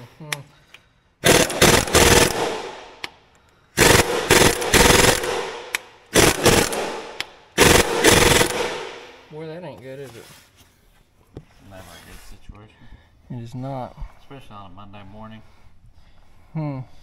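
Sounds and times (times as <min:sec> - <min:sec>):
pneumatic impact wrench hammering: 0:01.2 - 0:03.1, 0:03.8 - 0:09.1.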